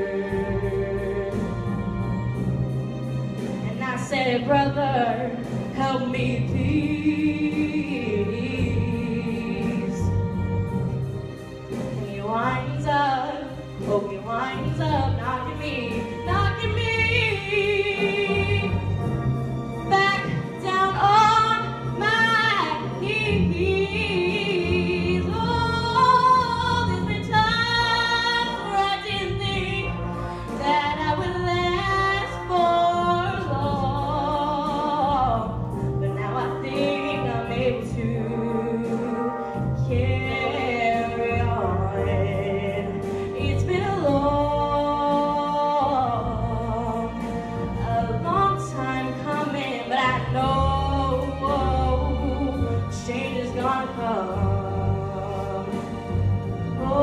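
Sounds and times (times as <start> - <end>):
instrumental accompaniment: 0.0 - 57.0
woman singing a slow song: 19.9 - 56.2.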